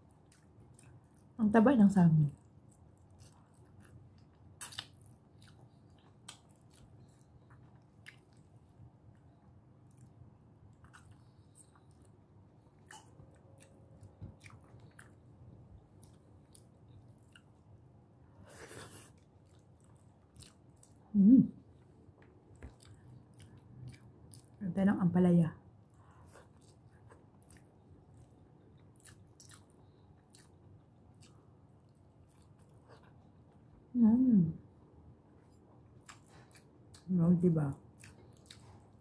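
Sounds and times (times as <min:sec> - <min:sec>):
person chewing food: 0:00.0 - 0:01.4, 0:02.3 - 0:24.6, 0:25.8 - 0:33.7, 0:35.4 - 0:37.1, 0:37.9 - 0:39.0.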